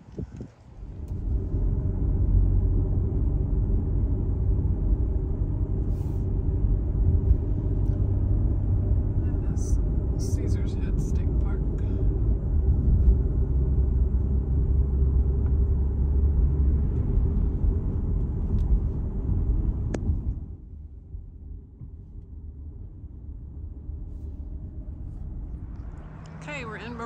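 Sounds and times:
car cabin road rumble: 0.0 - 27.0.

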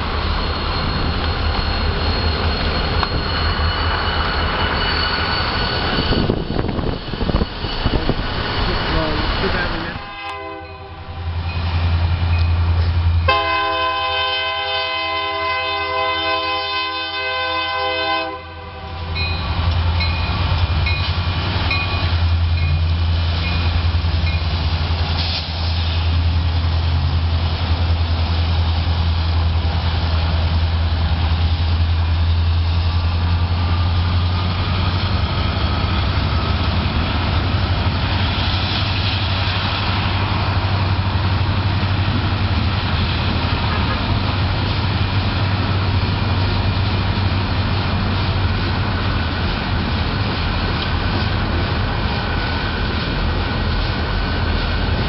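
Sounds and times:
passing train rumble: 0.0 - 55.0
locomotive air horn blast: 10.0 - 11.2, 13.3 - 19.2.

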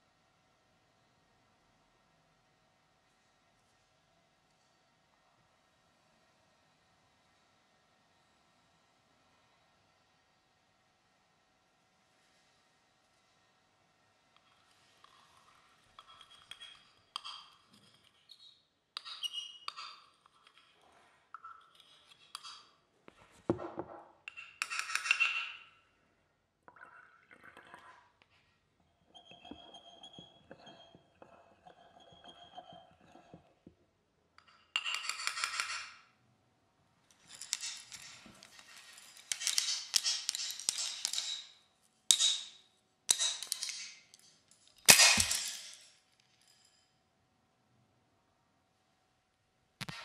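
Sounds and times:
glassy clinks: 37.2 - 47.0.

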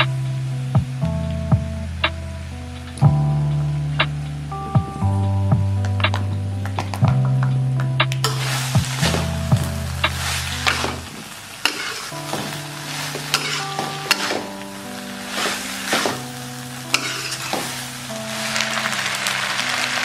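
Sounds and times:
background music: 0.0 - 20.0
spatula scraping a pan: 8.3 - 9.4, 10.1 - 16.3, 16.9 - 18.9
noodles sizzling in a wok: 8.3 - 20.0.

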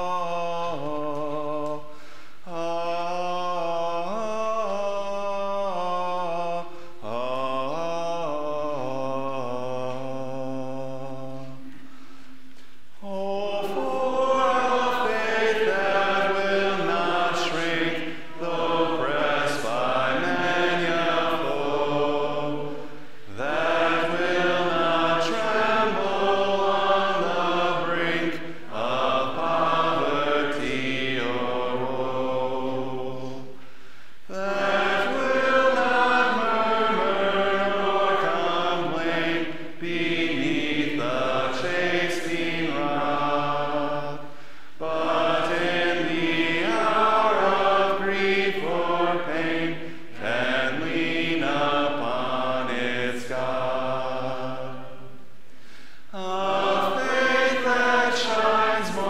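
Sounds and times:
congregation singing a hymn: 0.0 - 59.0.

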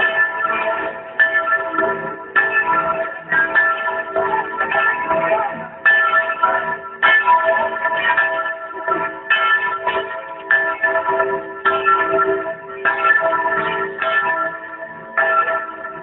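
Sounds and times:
bells ringing: 0.0 - 16.0.

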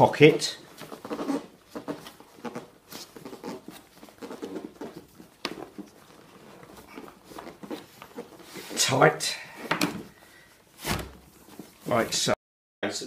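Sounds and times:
straps rustling and scraping: 0.0 - 12.4.

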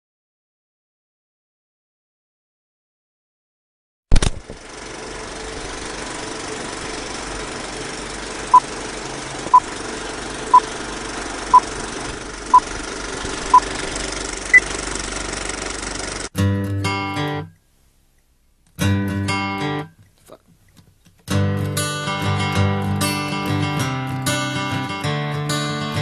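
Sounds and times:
loud click: 4.1 - 4.6
film projector rattling: 4.2 - 16.3.

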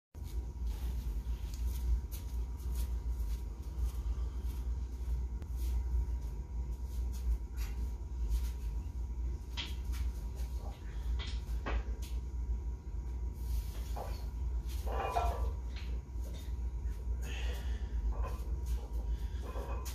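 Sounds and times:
steady low hum: 0.2 - 19.9
barbell plates clinking: 14.8 - 15.9.

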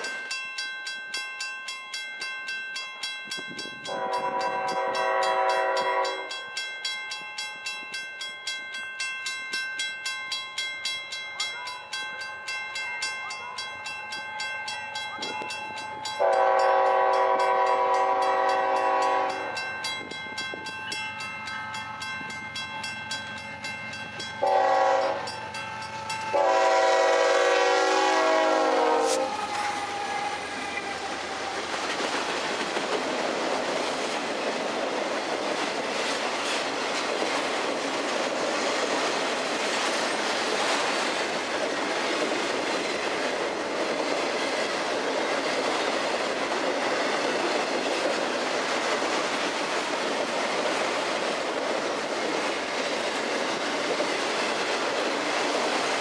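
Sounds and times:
locomotive air horn blasts: 3.9 - 6.3, 16.2 - 19.4, 24.4 - 25.3, 26.3 - 31.6
train wheels rumbling and clattering: 13.9 - 56.0.

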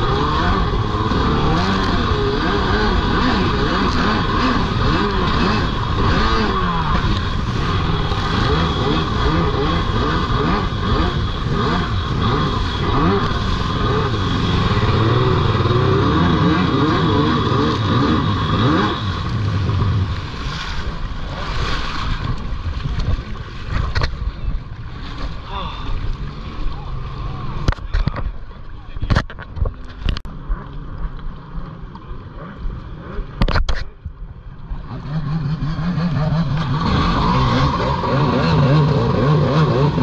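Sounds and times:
jet ski engines revving: 0.0 - 40.0.

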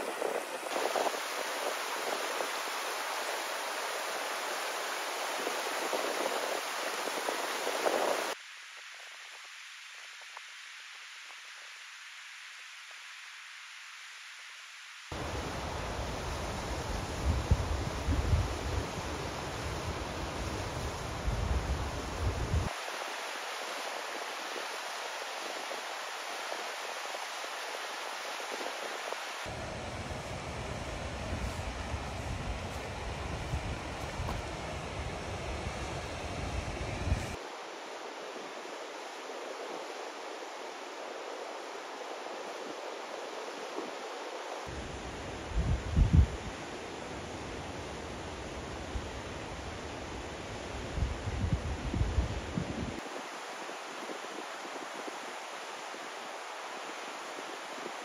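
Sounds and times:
stream rushing over rocks: 0.0 - 8.4, 15.1 - 38.6, 53.0 - 58.0.

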